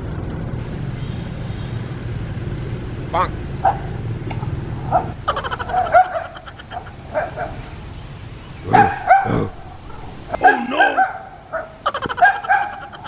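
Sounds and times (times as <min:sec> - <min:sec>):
dog barking: 0:04.9 - 0:06.4, 0:07.1 - 0:07.7, 0:08.5 - 0:13.0.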